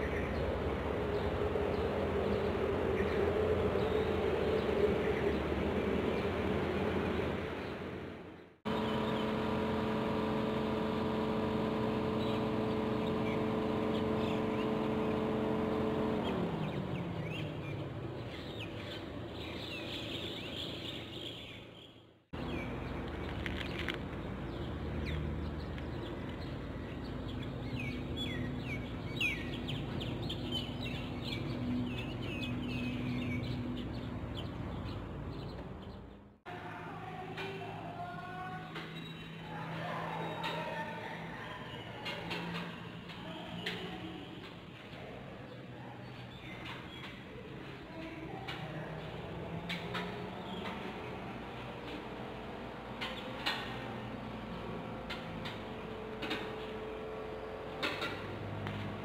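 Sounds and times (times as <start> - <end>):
engine drone: 0.0 - 20.6, 22.3 - 37.5, 48.5 - 59.0
faint motor hum: 0.0 - 20.6
small birds chirping: 0.0 - 36.5, 37.4 - 59.0.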